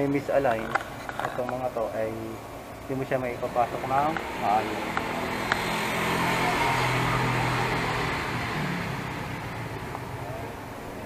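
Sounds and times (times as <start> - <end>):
vehicle engine running: 2.8 - 11.0.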